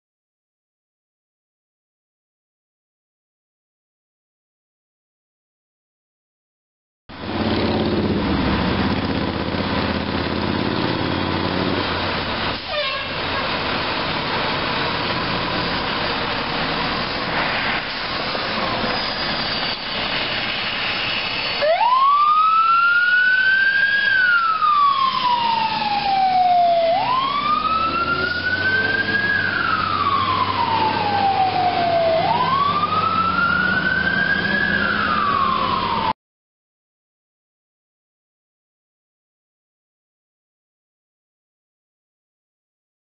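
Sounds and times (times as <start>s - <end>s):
fire engine engine running: 7.1s - 36.1s
fire engine siren wailing: 9.9s - 16.9s, 18.6s - 36.2s.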